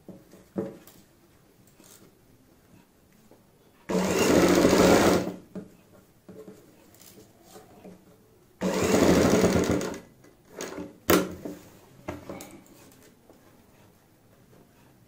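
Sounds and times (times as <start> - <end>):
sewing machine stitching: 3.9 - 5.4, 8.6 - 10.8.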